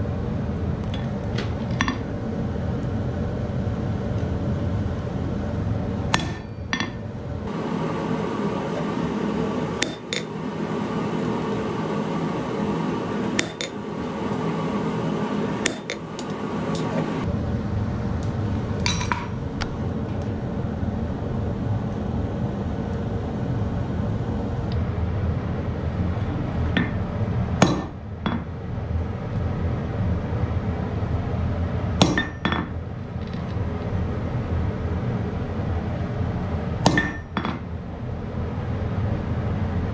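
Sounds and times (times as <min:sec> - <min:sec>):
steady rushing background noise: 0:00.0 - 0:39.9
hammer striking steel on anvil: 0:06.1 - 0:07.0, 0:09.7 - 0:10.5, 0:13.2 - 0:14.0, 0:15.6 - 0:17.2, 0:18.8 - 0:19.4, 0:27.6 - 0:28.5, 0:32.0 - 0:32.8, 0:36.8 - 0:37.6.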